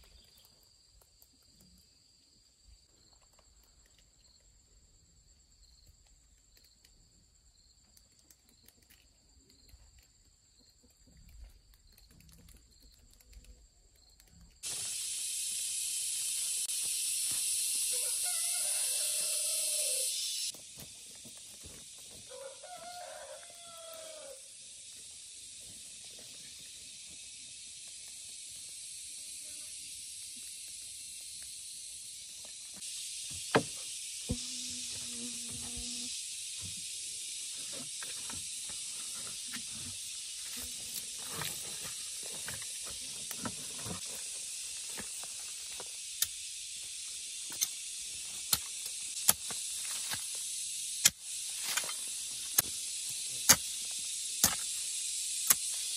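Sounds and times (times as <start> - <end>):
steady high hiss: 14.6 - 55.9.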